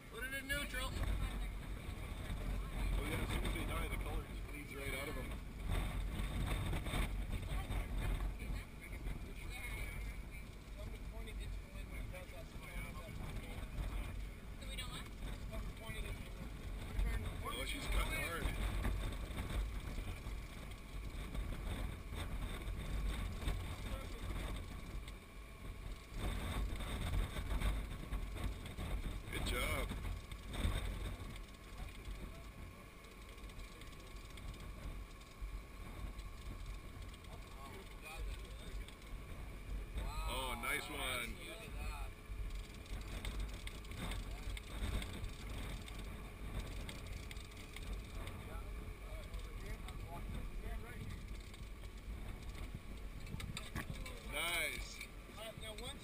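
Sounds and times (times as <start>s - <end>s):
boat rumble and water wash: 0.0s - 56.0s
wind buffeting microphone: 0.2s - 56.0s
faint voices: 25.7s - 56.0s.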